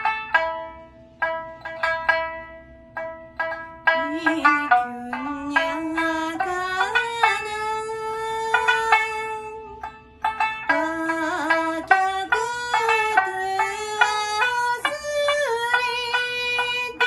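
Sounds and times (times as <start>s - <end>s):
plucked lute notes: 0.0s - 17.0s
woman singing: 4.0s - 9.9s, 10.6s - 17.0s.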